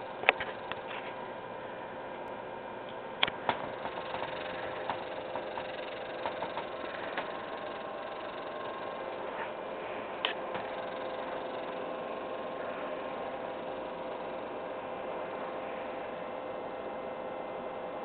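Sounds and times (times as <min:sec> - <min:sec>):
mechanical hum with hiss: 0:00.0 - 0:18.0
sharp clicks: 0:02.9 - 0:09.0.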